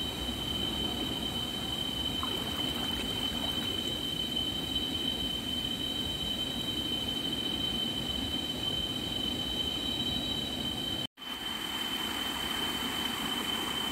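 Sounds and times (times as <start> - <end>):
high-pitched insect drone: 0.0 - 13.9
river water flowing: 0.4 - 4.2.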